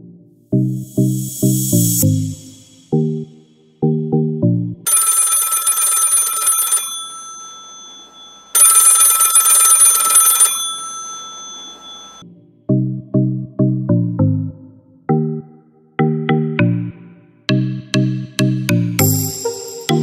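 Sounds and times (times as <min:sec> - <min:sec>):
bell-like ringing: 0:04.9 - 0:12.2.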